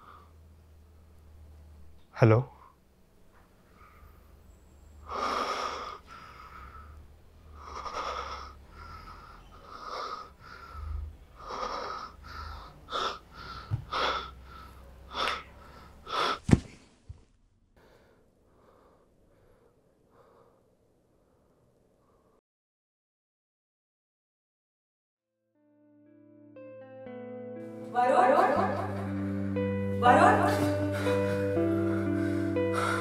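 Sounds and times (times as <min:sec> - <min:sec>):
man gasping and wheezing: 0:30.6 - 0:33.0.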